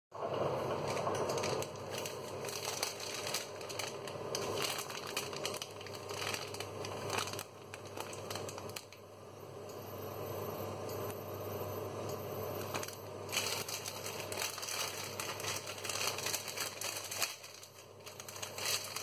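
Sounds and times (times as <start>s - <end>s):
plastic packet crinkling: 0.7s - 9.0s, 12.6s - 19.0s.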